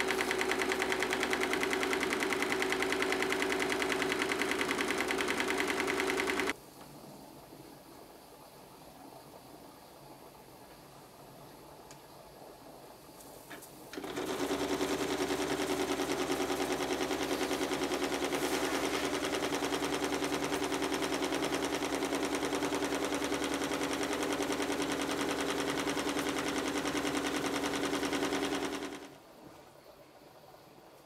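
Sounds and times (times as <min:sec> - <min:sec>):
steam engine mechanical beat: 0:00.0 - 0:06.6, 0:14.0 - 0:29.1.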